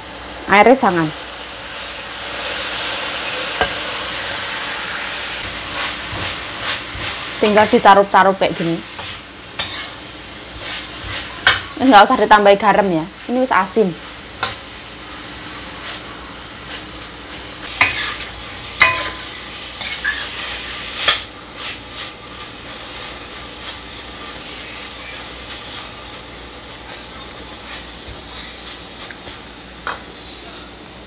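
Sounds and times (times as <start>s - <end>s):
food sizzling in a wok: 0.0s - 31.0s
metal spatula scraping a wok: 8.5s - 11.8s, 17.6s - 22.1s.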